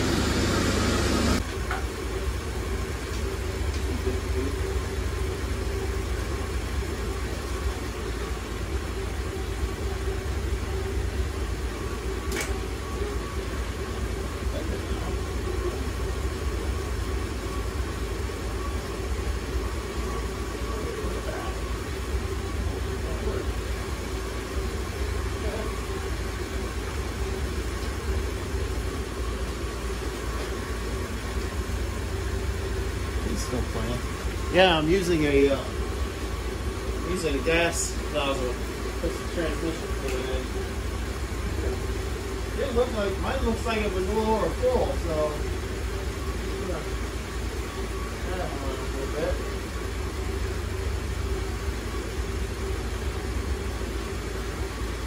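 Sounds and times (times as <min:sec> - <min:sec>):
loud noisy burst: 0:00.0 - 0:01.4
vehicle engine idling: 0:00.0 - 0:55.0
sharp click: 0:12.3 - 0:12.6.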